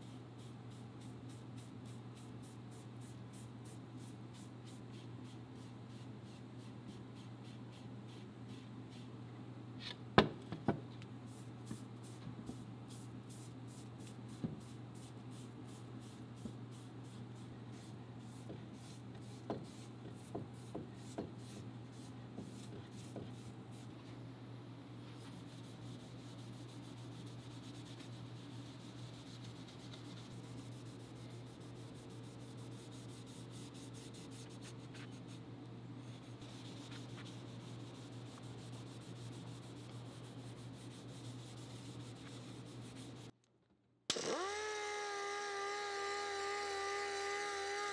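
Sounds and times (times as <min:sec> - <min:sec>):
steady low hum: 0:00.0 - 0:43.4
steel wool rubbing on wood: 0:25.2 - 0:35.4, 0:36.2 - 0:43.3.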